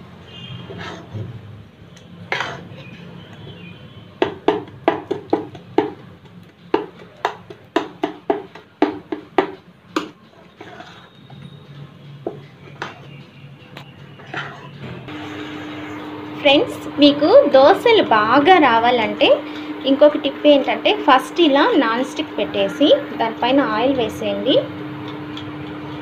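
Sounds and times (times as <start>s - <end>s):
soft stirring of batter: 10.0s - 13.2s, 13.8s - 16.1s.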